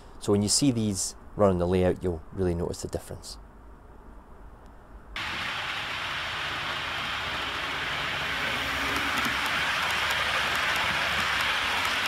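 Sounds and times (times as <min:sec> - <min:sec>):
model train rolling: 0:05.2 - 0:12.0.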